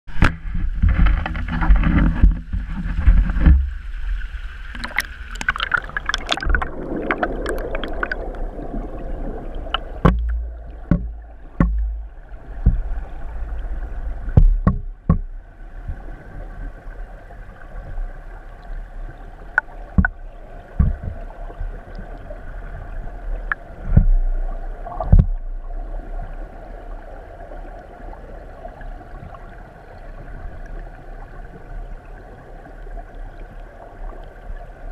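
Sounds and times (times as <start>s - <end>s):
underwater knocks and clicks: 0.1s - 8.8s, 9.4s - 16.1s, 19.4s - 25.6s
underwater stream rushing: 0.1s - 34.9s.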